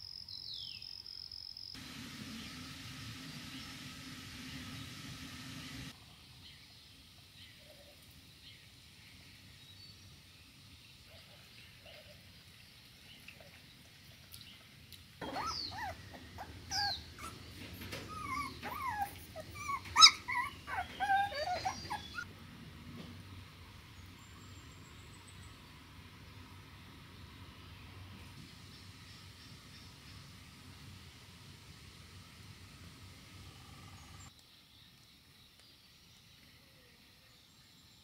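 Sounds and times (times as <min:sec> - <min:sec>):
puppies whining and yipping: 0:15.2 - 0:22.3
puppy yelp: 0:15.2 - 0:22.3.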